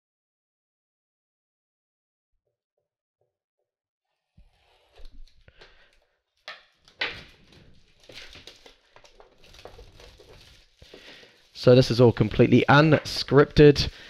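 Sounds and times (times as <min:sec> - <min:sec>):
box packaging scraping and rustling: 0:07.3 - 0:13.9.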